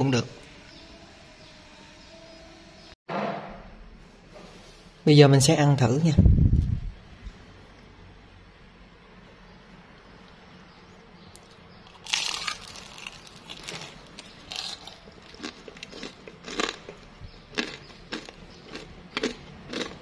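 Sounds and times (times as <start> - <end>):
crunchy bite and chewing: 11.4 - 20.0.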